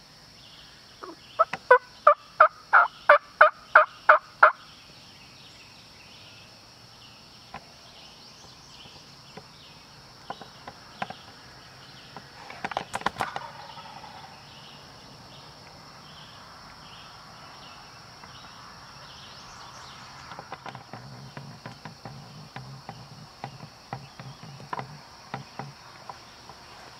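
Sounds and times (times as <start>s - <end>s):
insects droning: 0.0s - 26.9s
scattered clicks or rustles: 12.2s - 13.7s, 20.2s - 26.6s.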